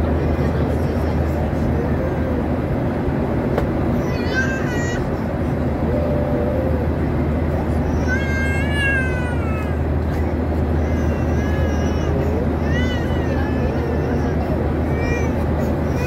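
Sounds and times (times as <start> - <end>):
airplane cabin engine hum: 0.0 - 16.0.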